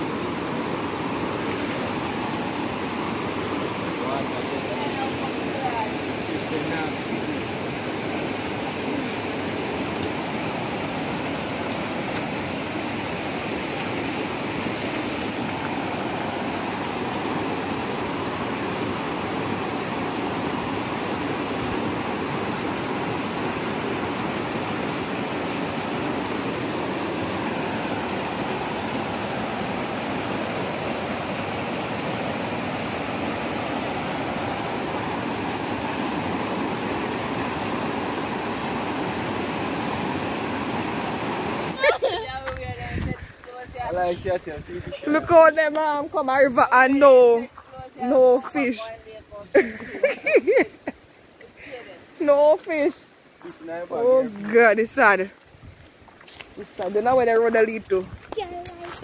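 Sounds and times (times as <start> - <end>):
river rushing over stones: 0.0 - 58.9.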